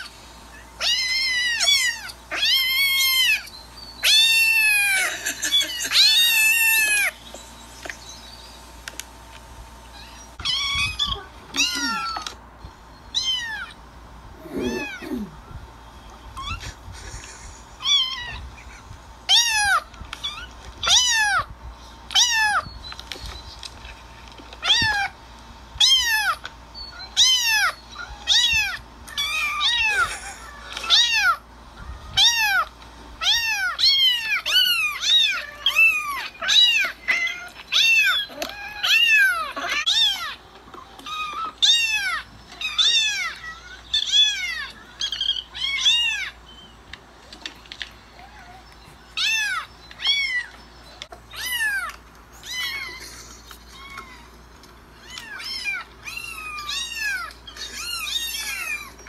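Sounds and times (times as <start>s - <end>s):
cat meowing: 10.0s - 12.3s, 14.4s - 15.3s.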